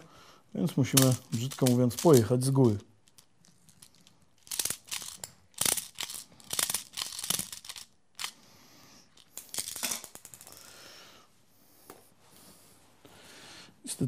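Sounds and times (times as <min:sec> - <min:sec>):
pellets clicking into magazine: 0:00.9 - 0:08.4.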